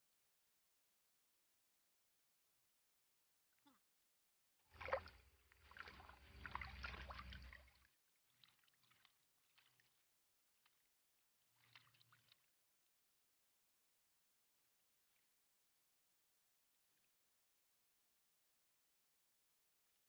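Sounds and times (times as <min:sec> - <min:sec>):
water sloshing in a pan: 0:04.7 - 0:10.0.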